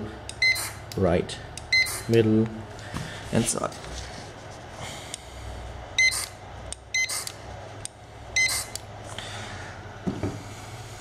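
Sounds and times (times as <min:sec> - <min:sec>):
barcode scanner beeping: 0:00.3 - 0:00.8, 0:01.6 - 0:02.1, 0:06.0 - 0:07.3, 0:08.4 - 0:08.7.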